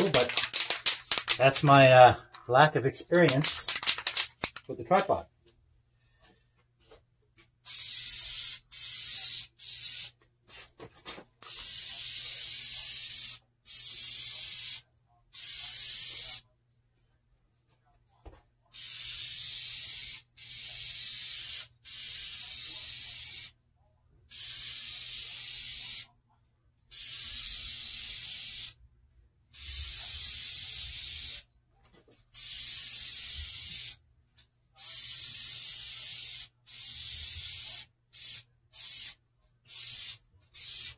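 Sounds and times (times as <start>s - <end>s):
aerosol can spraying: 0.0s - 1.9s, 3.2s - 5.1s, 7.7s - 10.2s, 11.4s - 14.8s, 15.4s - 16.4s, 18.8s - 23.5s, 24.3s - 26.1s, 26.9s - 28.8s, 29.6s - 31.4s, 32.4s - 34.0s, 34.8s - 40.9s.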